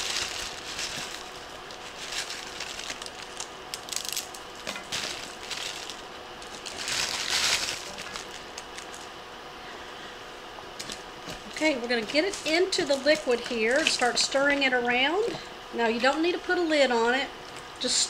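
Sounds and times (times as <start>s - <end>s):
plastic wrappers crinkling: 0.0s - 9.1s, 10.8s - 15.4s.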